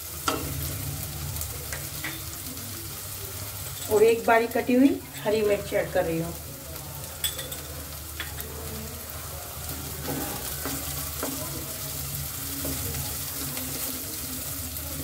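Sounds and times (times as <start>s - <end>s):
vegetables sizzling in a pan: 0.0s - 15.0s
spatula knocking and scraping pan: 10.0s - 11.6s.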